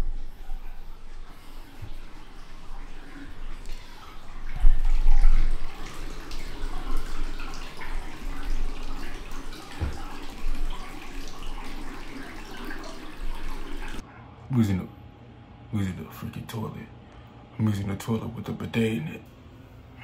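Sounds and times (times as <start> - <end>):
water running into bathtub: 0.0 - 14.0.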